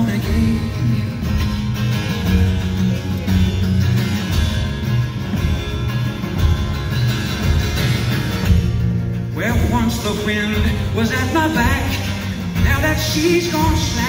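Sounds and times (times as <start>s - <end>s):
electric guitar: 0.0s - 14.0s
strummed acoustic guitar: 0.0s - 14.0s.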